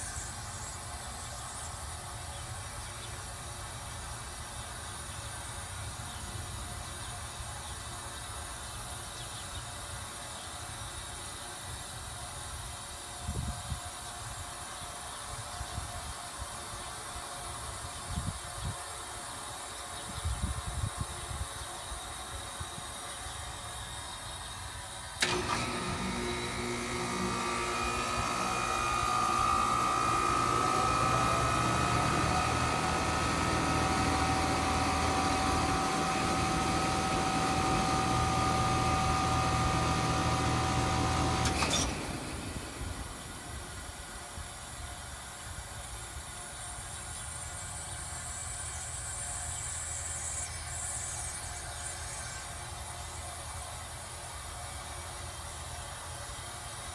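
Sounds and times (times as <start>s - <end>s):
faint steady whine: 0.0s - 56.9s
heat pump humming: 20.4s - 56.9s
heat pump switching click: 25.2s - 43.6s.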